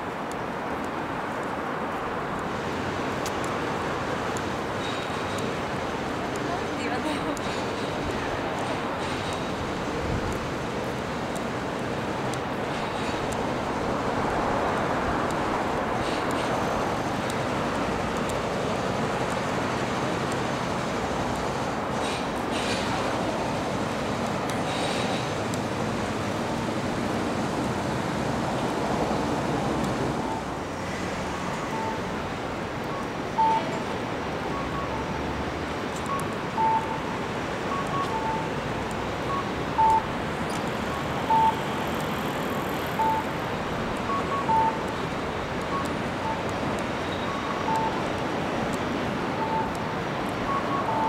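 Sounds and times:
city traffic: 0.0s - 51.0s.

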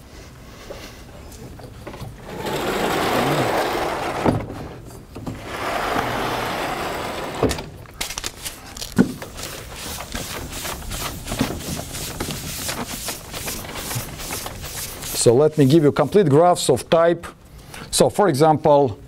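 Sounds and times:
chalkboard panels rolling along tracks: 1.8s - 7.8s, 8.8s - 16.4s.

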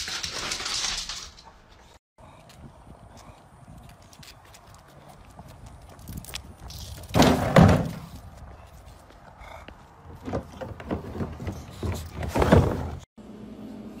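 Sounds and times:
plastic trash bin thunking: 7.1s - 8.1s.

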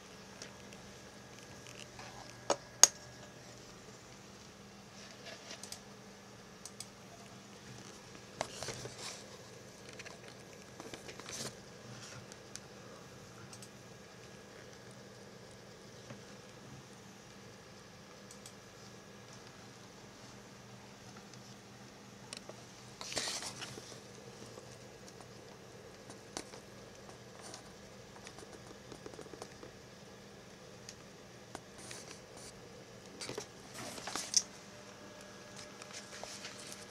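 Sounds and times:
computer fans humming: 0.0s - 36.9s
computer mouse clicks: 5.4s - 5.9s, 6.6s - 7.0s, 13.4s - 13.8s, 18.2s - 18.6s, 25.9s - 29.7s.

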